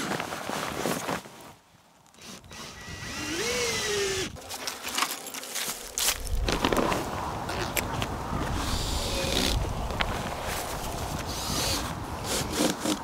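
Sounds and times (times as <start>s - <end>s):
cordless drill spinning: 2.2s - 4.3s
rustling and handling noise: 4.4s - 8.7s.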